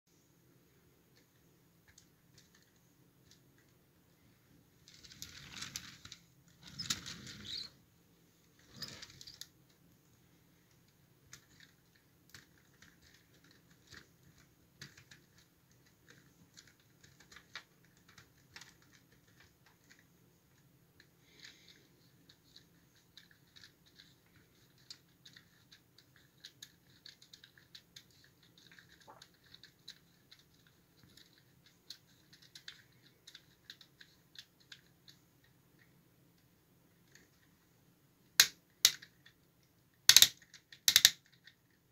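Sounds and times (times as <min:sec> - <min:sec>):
rustling handling noise: 0:00.5 - 0:37.8
plastic gears clicking: 0:38.4 - 0:39.4, 0:40.0 - 0:41.8.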